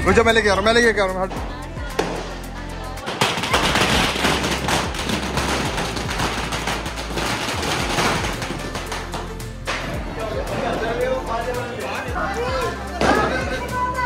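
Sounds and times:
string of firecrackers rattling: 0:03.0 - 0:10.0.

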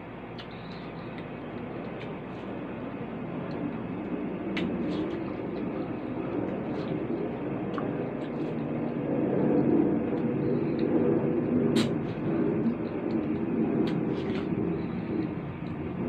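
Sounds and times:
rumbling background noise: 0:00.0 - 0:16.0
chewing watermelon: 0:00.4 - 0:02.5, 0:11.7 - 0:15.8.

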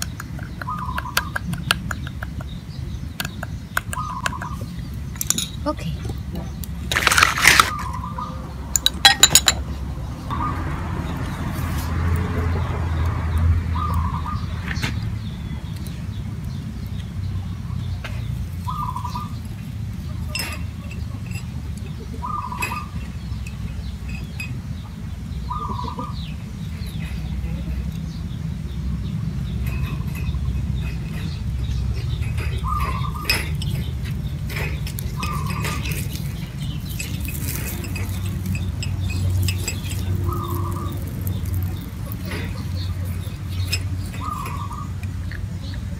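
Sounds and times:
ceramic bowls clinking on wire rack: 0:05.2 - 0:05.8, 0:08.8 - 0:09.7, 0:20.2 - 0:24.6, 0:29.5 - 0:45.0.

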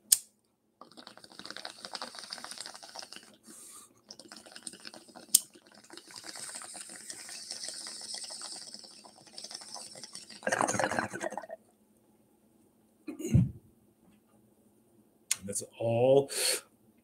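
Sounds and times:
water bubbling in bong: 0:00.8 - 0:03.4, 0:04.0 - 0:11.6.

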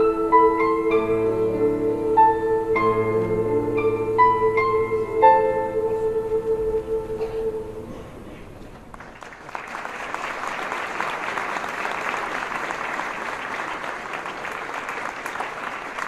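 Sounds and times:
choir chord: 0:00.0 - 0:08.4
audience applauding: 0:08.8 - 0:16.0.

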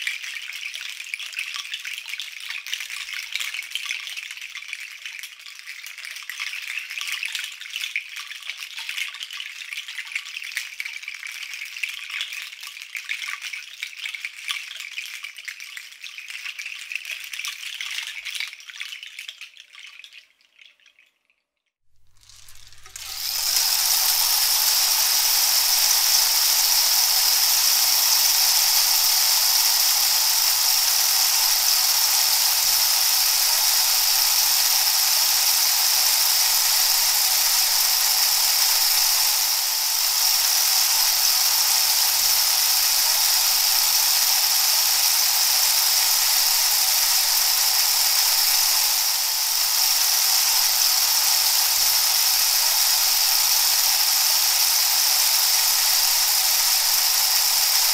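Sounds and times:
steady rushing hiss: 0:22.7 - 0:57.9.

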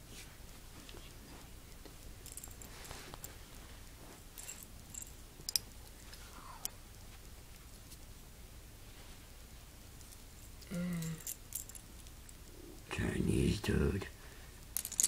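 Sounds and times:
rustling handling noise: 0:00.0 - 0:08.2.

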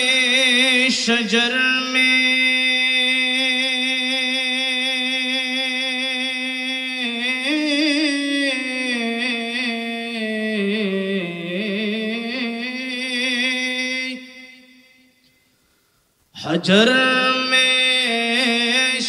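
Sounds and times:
man singing: 0:00.0 - 0:15.1, 0:16.4 - 0:19.0.

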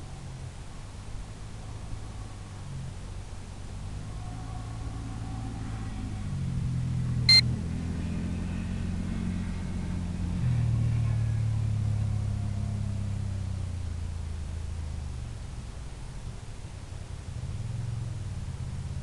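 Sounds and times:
low mechanical drone: 0:00.0 - 0:19.0
short electronic beep: 0:07.3 - 0:07.5.

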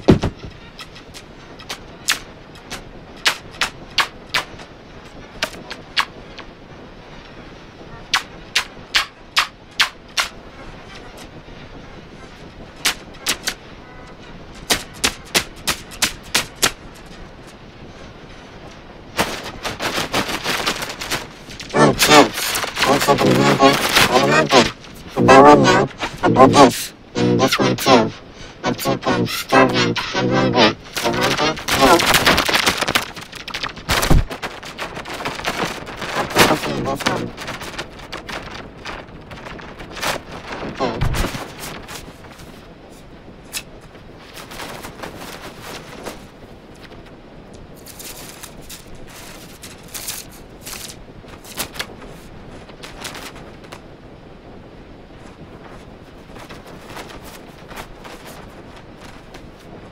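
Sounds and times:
dense irregular crackling and clicking: 0:19.2 - 0:42.6, 0:46.8 - 0:53.8.

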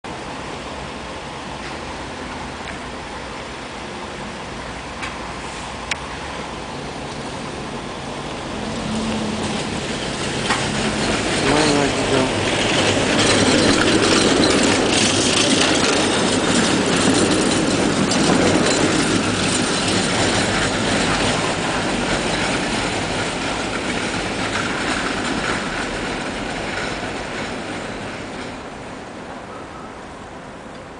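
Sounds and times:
tram running on rails: 0:00.1 - 0:30.9.

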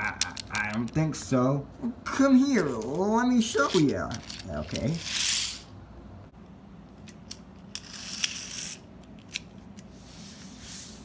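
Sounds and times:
toy car wheels scraping on floor: 0:03.6 - 0:05.7, 0:07.7 - 0:08.8.

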